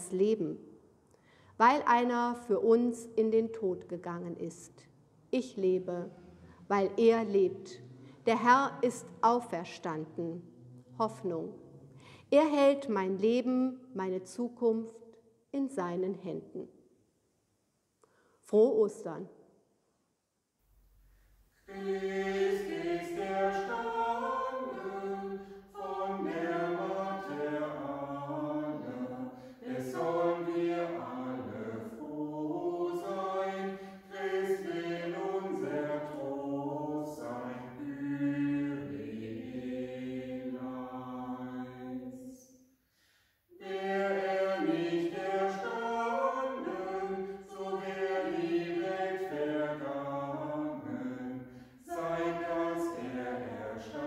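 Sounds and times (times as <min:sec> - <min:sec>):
singers breathing: 0:01.1 - 0:01.6, 0:07.8 - 0:08.3, 0:11.8 - 0:12.3, 0:18.0 - 0:18.4, 0:25.3 - 0:25.8, 0:29.3 - 0:29.7, 0:42.8 - 0:43.5, 0:51.4 - 0:51.9
vocal quartet singing a cappella: 0:21.6 - 0:54.0.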